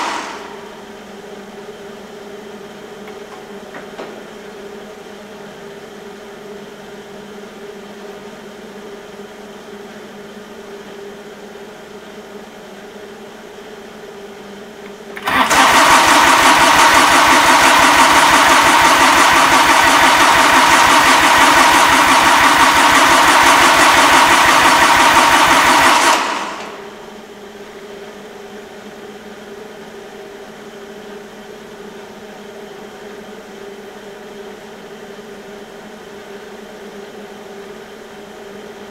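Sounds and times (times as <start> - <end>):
diesel engine cranking on starter: 0.0 - 0.7, 15.1 - 27.1.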